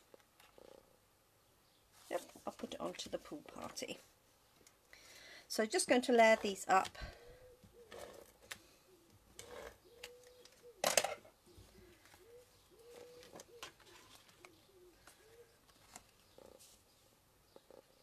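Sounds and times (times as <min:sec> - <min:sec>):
dove cooing: 0:07.0 - 0:16.7
paper rustling: 0:12.8 - 0:16.8.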